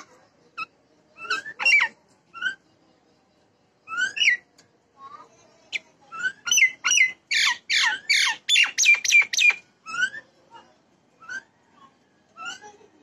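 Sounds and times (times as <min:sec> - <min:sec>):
myna bird harsh calls: 0:06.1 - 0:10.2.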